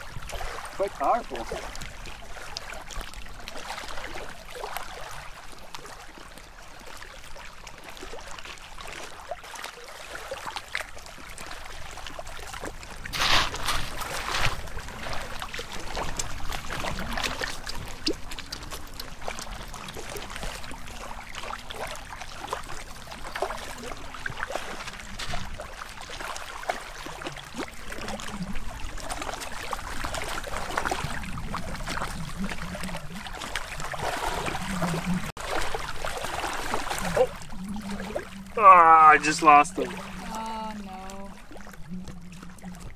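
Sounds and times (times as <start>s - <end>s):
river water running: 0.0s - 42.9s
short splashes and clicks: 12.6s - 20.6s.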